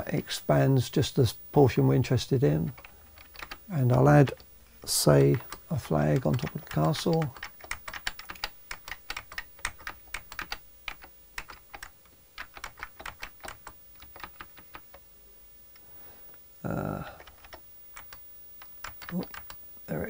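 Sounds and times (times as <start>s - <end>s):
computer keyboard keys clicking: 2.7s - 3.6s, 5.2s - 15.0s, 17.2s - 19.6s.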